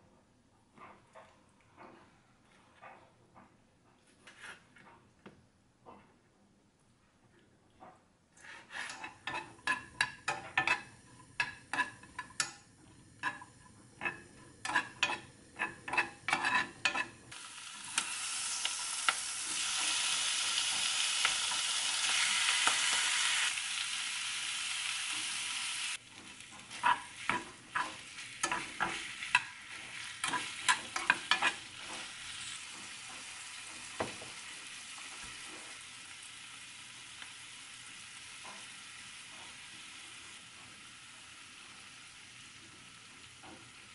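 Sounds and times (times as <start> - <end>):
spatula scraping a pan: 8.4 - 18.1, 26.1 - 35.8
food sizzling in a pan: 8.7 - 43.9.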